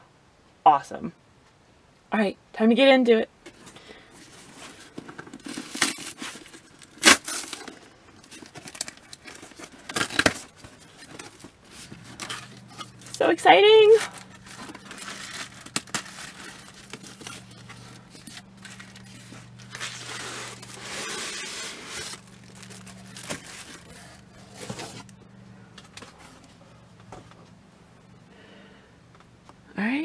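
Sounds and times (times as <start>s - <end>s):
packing paper rustling: 3.5s - 25.2s
cardboard scraping: 4.2s - 13.2s, 13.8s - 25.2s.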